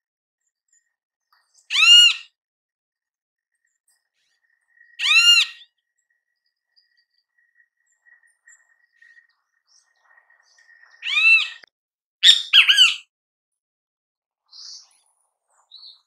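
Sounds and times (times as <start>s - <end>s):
kiskadee harsh calls: 1.7s - 2.3s, 5.0s - 5.7s, 11.0s - 13.1s.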